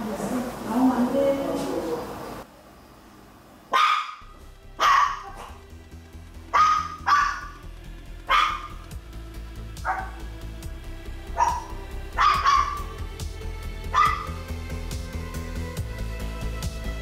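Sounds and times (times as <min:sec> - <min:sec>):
dog barking sharply: 0:03.7 - 0:05.6, 0:06.5 - 0:07.6, 0:08.3 - 0:08.8, 0:09.8 - 0:10.2, 0:11.4 - 0:12.9, 0:13.9 - 0:14.4.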